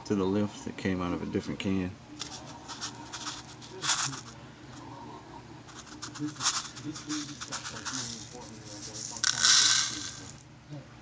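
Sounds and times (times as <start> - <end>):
plastic cups scraping and tapping: 2.2 - 4.4, 5.7 - 10.4.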